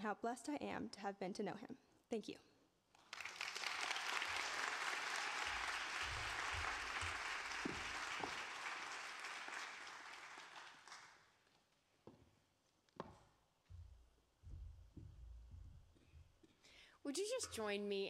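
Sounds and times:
audience applause: 3.0s - 11.3s.

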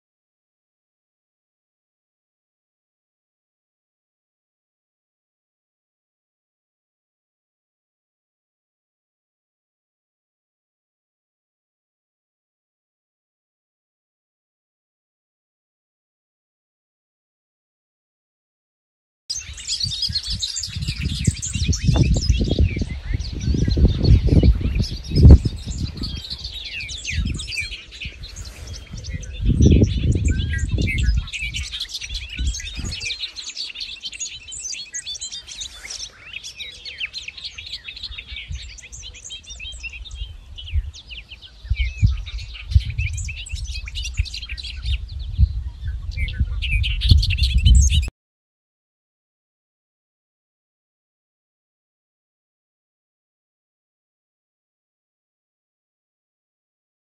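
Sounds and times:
songbirds chirping and singing: 19.3s - 48.1s
wind buffeting microphone: 19.4s - 34.6s, 37.6s - 48.1s.

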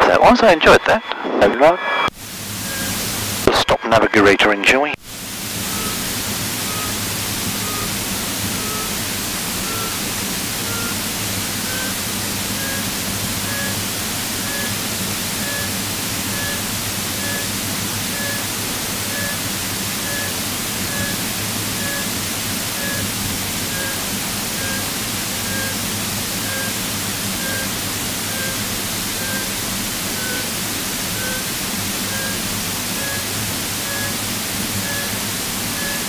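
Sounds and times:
radio intercom hiss: 0.0s - 36.0s
short electronic beeps: 2.6s - 3.0s, 5.6s - 7.0s, 7.6s - 9.0s, 9.6s - 10.0s, 10.6s - 11.0s, 11.6s - 13.8s, 14.4s - 14.8s, 15.4s - 17.5s, 18.1s - 19.4s, 20.0s - 22.1s, 22.7s - 23.1s, 23.7s - 25.8s, 26.4s - 26.8s, 27.4s - 30.5s, 31.1s - 31.5s, 32.1s - 34.2s, 34.8s - 36.0s.

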